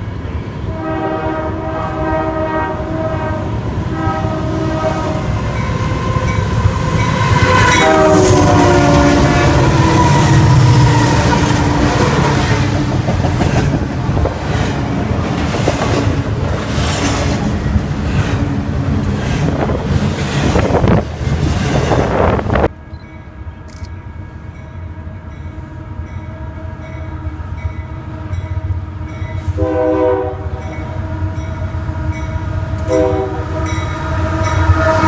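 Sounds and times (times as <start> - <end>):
train rumbling and clicking by: 0.0 - 35.0
train air horn blasts: 0.7 - 12.8, 29.4 - 32.2, 32.8 - 35.0.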